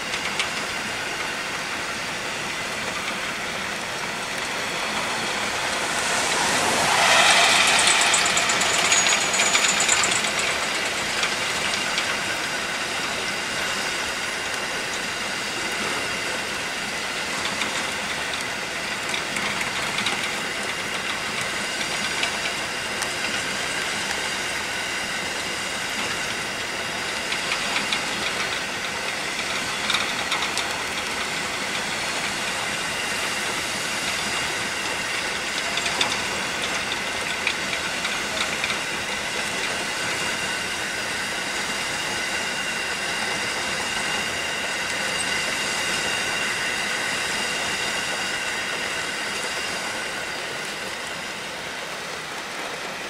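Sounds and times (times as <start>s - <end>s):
train wheels on rail: 0.0s - 53.0s
wheels clicking over rail joints: 0.0s - 53.0s
faint high ringing: 4.9s - 11.6s.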